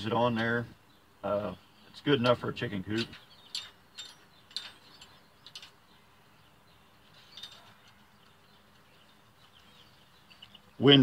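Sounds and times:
metal gate latch clicking: 0:02.2 - 0:05.9, 0:07.3 - 0:08.0.

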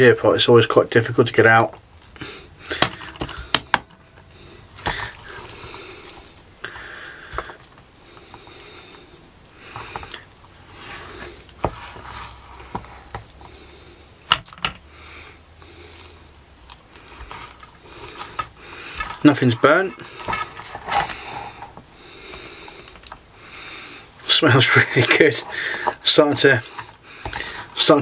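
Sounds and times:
soft food squelches: 0:00.0 - 0:28.0
spoon scraping metal pot: 0:17.0 - 0:22.4.

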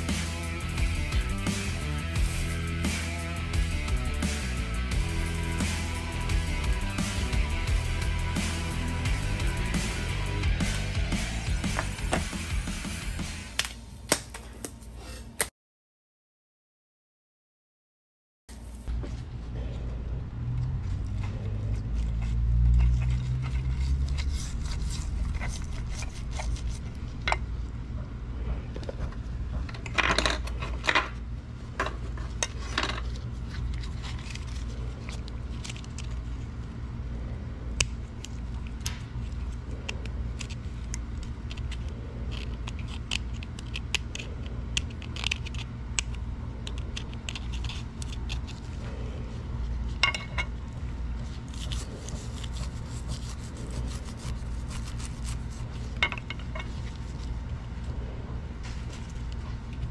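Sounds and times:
low steady hum: 0:18.5 - 0:59.9.

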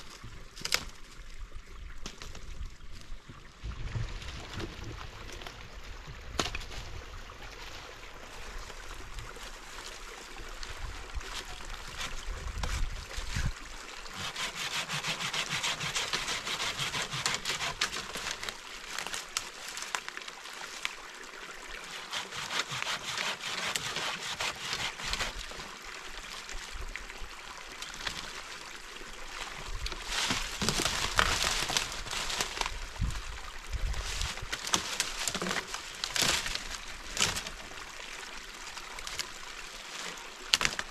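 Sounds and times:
hand saw rasping through wood: 0:14.1 - 0:18.2, 0:21.8 - 0:25.6.

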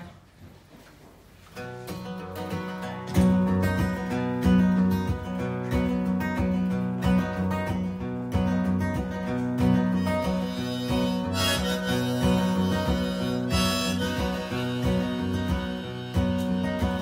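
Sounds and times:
acoustic guitar: 0:00.0 - 0:17.0
harmonica: 0:09.8 - 0:17.0.

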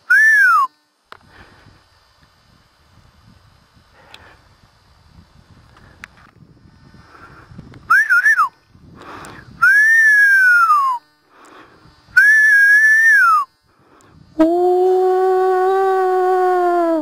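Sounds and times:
person whistling loudly: 0:00.0 - 0:00.8, 0:07.9 - 0:08.6, 0:09.6 - 0:11.1, 0:12.2 - 0:13.5
low hummed tone: 0:00.0 - 0:17.0.

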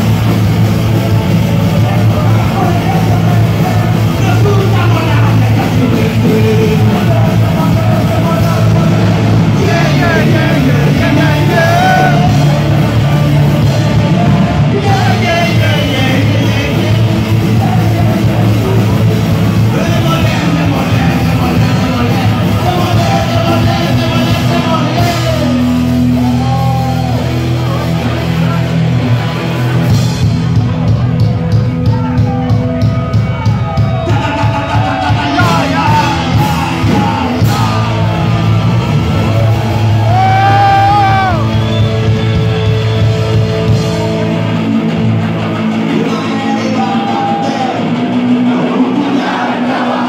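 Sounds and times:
electric guitar: 0:00.0 - 0:50.0
live rock band playing: 0:00.0 - 0:50.0
sung and yelled vocals: 0:01.2 - 0:27.4, 0:33.6 - 0:43.0, 0:45.6 - 0:50.0.

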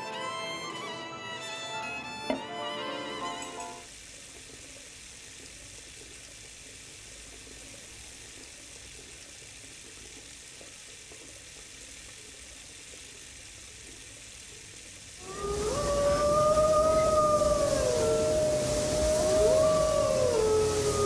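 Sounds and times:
steady hiss: 0:03.2 - 0:21.0.

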